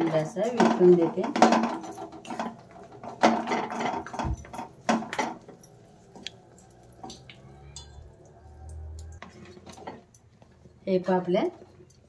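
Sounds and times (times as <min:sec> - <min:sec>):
wooden spatula scraping steel bowl: 0:09.2 - 0:10.1.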